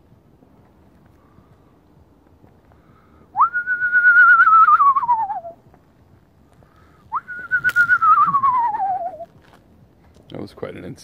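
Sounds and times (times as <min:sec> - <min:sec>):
person whistling owl call: 0:03.3 - 0:05.6, 0:07.1 - 0:09.3.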